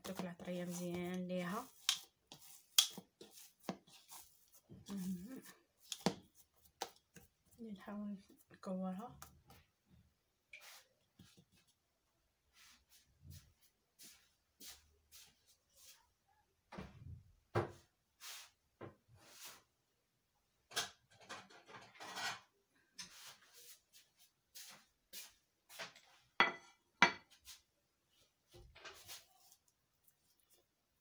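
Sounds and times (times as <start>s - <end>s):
dishes scraping and knocking: 20.8s - 22.5s, 25.8s - 27.4s
plate set down on stone counter: 26.4s - 27.3s.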